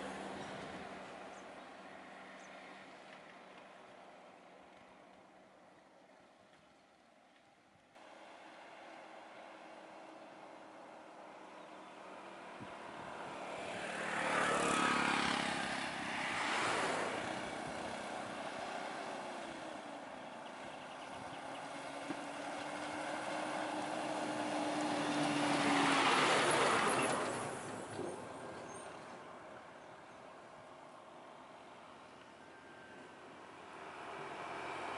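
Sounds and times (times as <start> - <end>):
vehicles passing: 0.0 - 6.6, 8.0 - 34.9
truck engine: 8.0 - 29.8.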